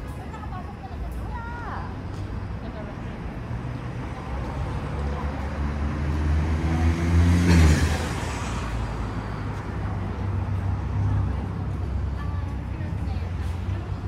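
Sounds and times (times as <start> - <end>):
motor vehicle passing: 3.1 - 12.0.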